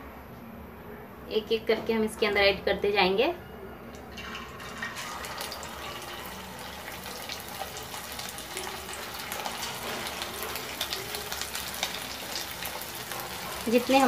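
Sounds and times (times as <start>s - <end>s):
kebabs sizzling in hot oil: 4.1s - 14.0s.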